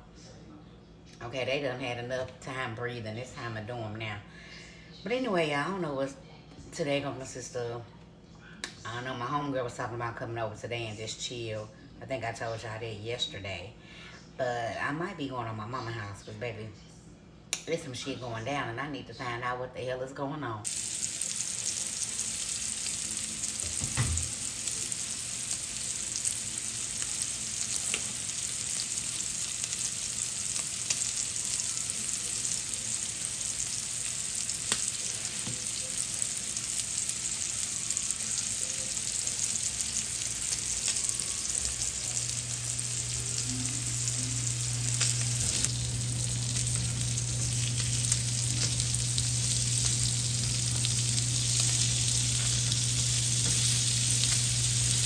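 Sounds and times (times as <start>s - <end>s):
low steady hum: 0.0s - 55.0s
food sizzling in a pan: 20.6s - 55.0s.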